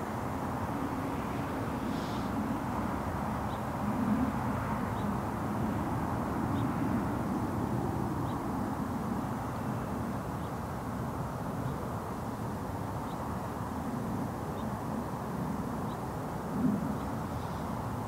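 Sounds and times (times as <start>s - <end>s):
distant traffic rumble: 0.0s - 18.0s.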